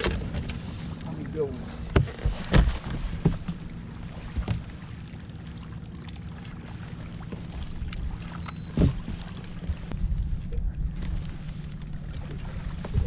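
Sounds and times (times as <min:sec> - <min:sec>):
boat engine rumble: 0:00.0 - 0:13.0
knocks on boat hull: 0:01.9 - 0:03.6.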